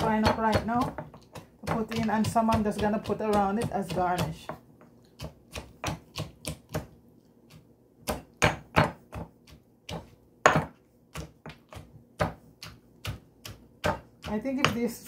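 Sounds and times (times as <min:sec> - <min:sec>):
pestle pounding in a mortar: 0:00.0 - 0:15.0.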